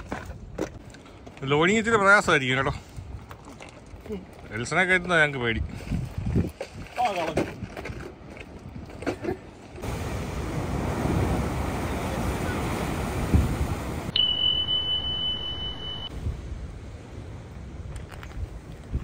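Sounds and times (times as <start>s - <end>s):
wind buffeting microphone: 1.8s - 14.1s, 16.1s - 19.0s
sea surf rushing: 9.8s - 18.6s
steady high-pitched tone: 14.1s - 16.1s.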